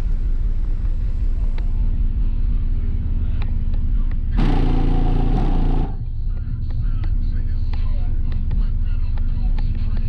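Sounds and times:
bass-heavy music from car subwoofers: 0:00.0 - 0:10.0.

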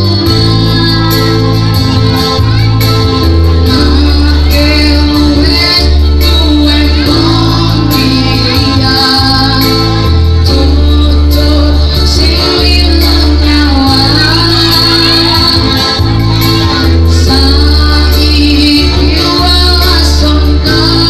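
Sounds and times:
heavy bass line: 0:00.0 - 0:21.0
person singing into microphone: 0:00.0 - 0:21.0.

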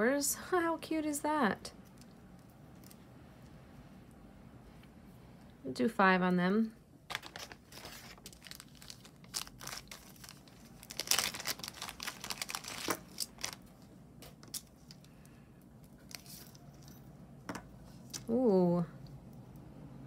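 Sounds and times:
plastic bags crinkling: 0:07.1 - 0:15.1.

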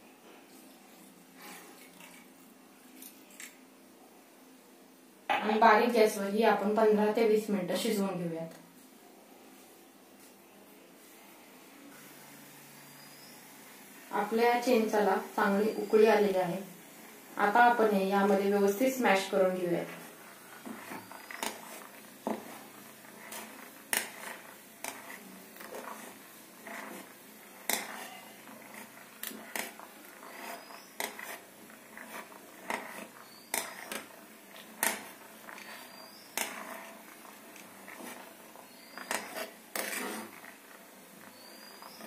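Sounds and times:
metal spoon scraping a pot: 0:18.3 - 0:42.0
liquid simmering: 0:19.9 - 0:42.0.

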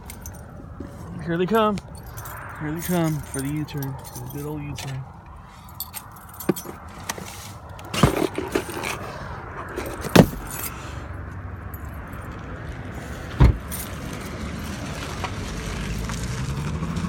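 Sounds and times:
car running and road noise: 0:00.0 - 0:17.0.

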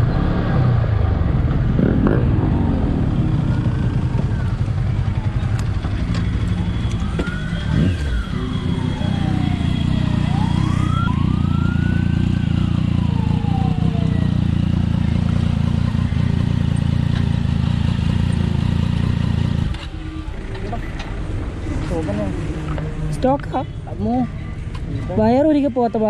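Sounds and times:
motorcycle engine idling: 0:01.3 - 0:26.0
siren wailing: 0:02.0 - 0:16.3, 0:19.7 - 0:21.7.

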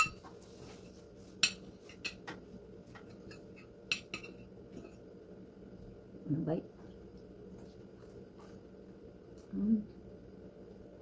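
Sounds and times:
fork clinking against plate: 0:03.1 - 0:05.0.

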